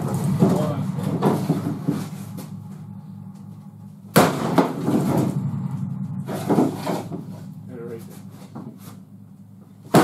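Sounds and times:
knocking and scraping: 0.0s - 2.9s
sharp bang: 0.0s - 8.8s
steady low hum: 0.0s - 10.0s.

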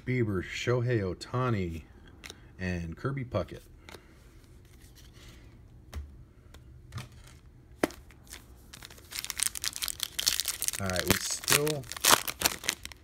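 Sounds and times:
foil wrapper crinkling: 8.1s - 13.0s.

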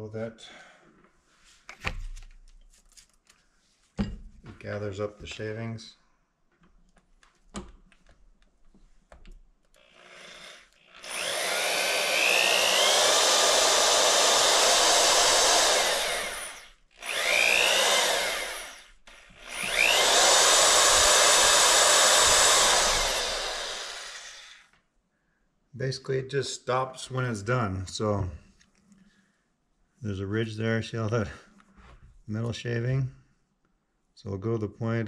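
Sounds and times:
electric drill whining: 9.7s - 24.8s.

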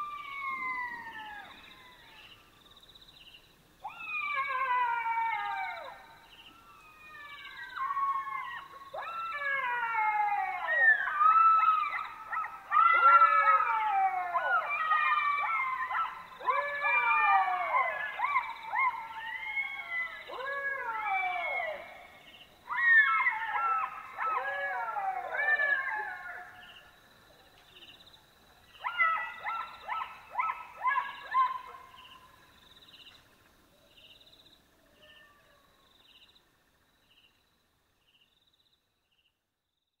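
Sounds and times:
jackals howling: 3.8s - 26.8s.

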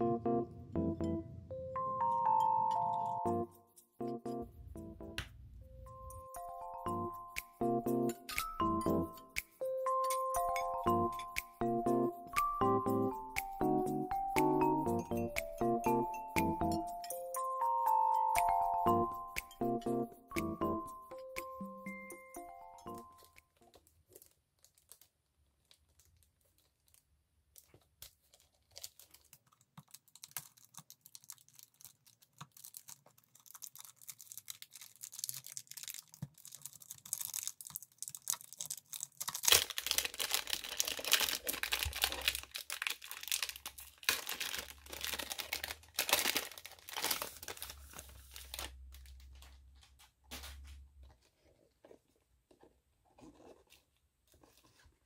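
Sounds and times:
plastic wrap crinkling and tearing: 23.2s - 50.5s.

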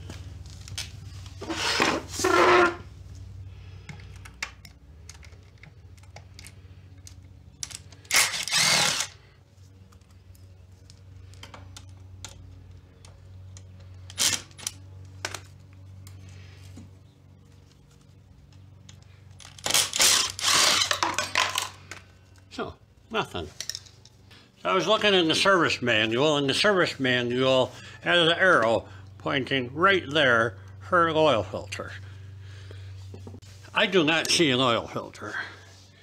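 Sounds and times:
cordless drill bursts: 8.0s - 9.2s, 19.7s - 21.0s
screws and parts clinking: 18.8s - 22.0s.

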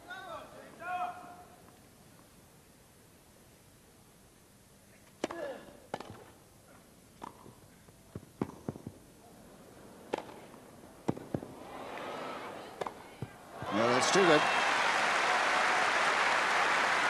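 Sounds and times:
tennis ball bouncing: 5.2s - 6.4s, 7.2s - 9.0s, 10.0s - 11.6s, 12.7s - 13.9s
tennis racket strikes: 5.2s - 6.4s, 7.2s - 7.6s, 10.1s - 11.5s.

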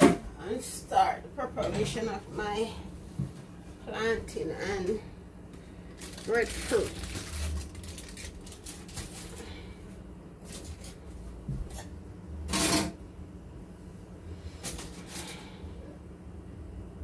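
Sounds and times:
low steady hum: 0.0s - 17.0s
foil rustling: 5.8s - 11.2s.

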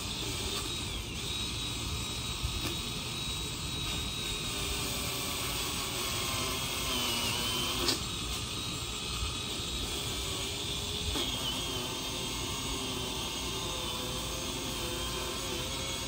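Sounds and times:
pole saw motor and chain whine: 0.0s - 16.0s.

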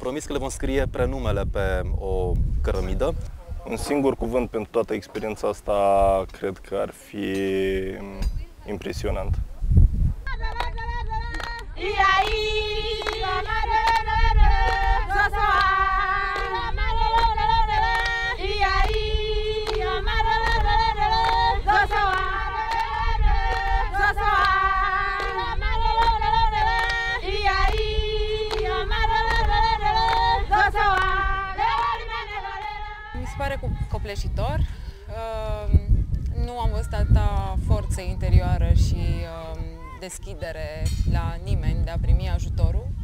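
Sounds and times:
high voices singing together: 10.3s - 33.9s
handclaps: 10.5s - 19.0s, 19.6s - 32.7s.

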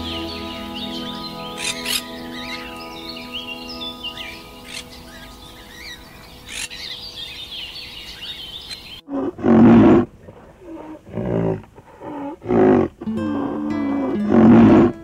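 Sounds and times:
soft background music: 0.0s - 7.7s
bird chirping: 0.0s - 9.1s.

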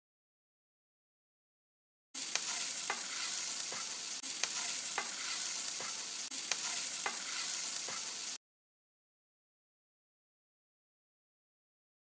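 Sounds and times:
pasta sizzling in a pan: 2.2s - 8.4s.

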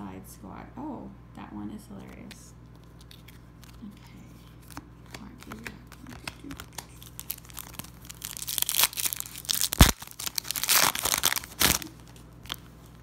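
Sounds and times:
wrapper tearing and crinkling: 4.5s - 13.0s.

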